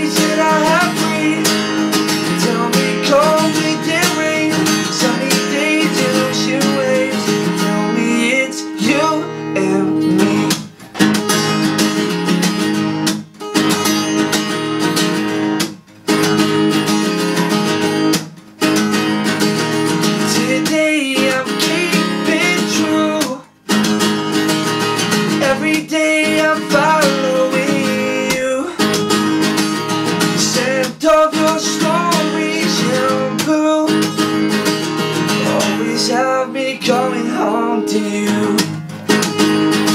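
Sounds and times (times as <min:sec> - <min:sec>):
man singing: 0:00.0 - 0:10.7, 0:20.2 - 0:23.6, 0:25.3 - 0:29.0, 0:30.2 - 0:34.2, 0:35.3 - 0:38.8
acoustic guitar strumming: 0:00.0 - 0:39.9.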